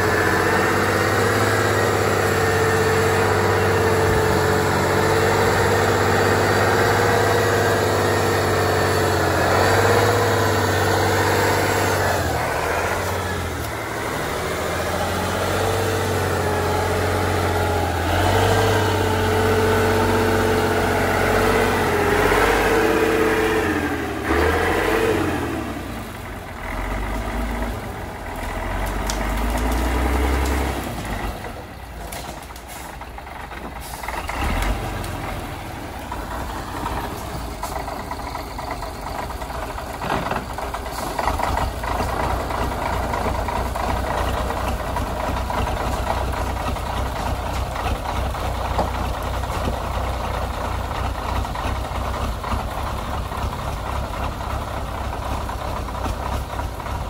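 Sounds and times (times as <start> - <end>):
truck diesel engine pulling: 0.0 - 57.0
clunks: 36.0 - 57.0.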